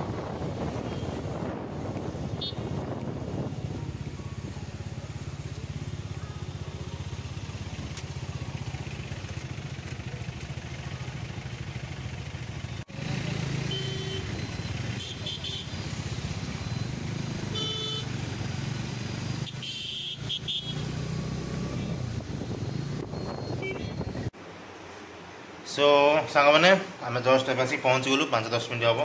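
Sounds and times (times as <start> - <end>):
motorcycle engine running: 0.0 - 24.3
short horn beeps: 2.4 - 2.8, 13.6 - 15.7, 17.5 - 18.1, 23.2 - 24.3.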